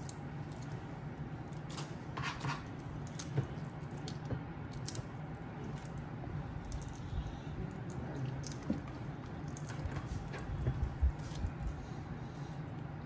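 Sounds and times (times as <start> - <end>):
steady low hum: 0.0 - 13.0
shells cracking and squishing: 2.7 - 10.0.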